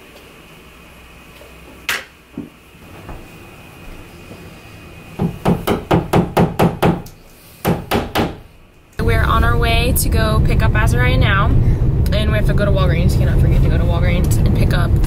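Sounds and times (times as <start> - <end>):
hammer tapping a nail: 5.2 - 8.4.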